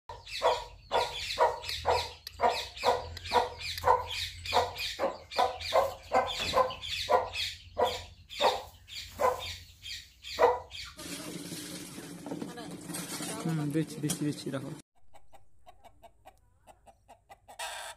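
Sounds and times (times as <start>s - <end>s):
rooster clucking: 15.0s - 17.9s.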